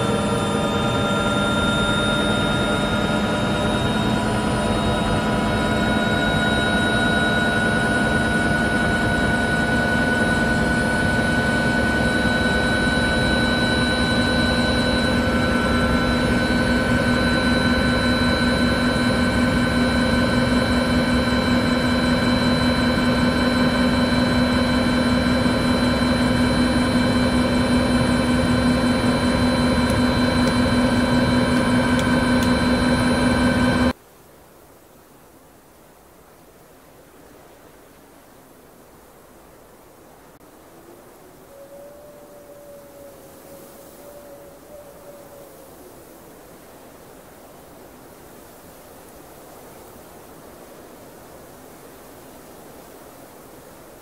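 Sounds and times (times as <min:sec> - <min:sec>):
drone propellers whining: 0:00.0 - 0:34.0.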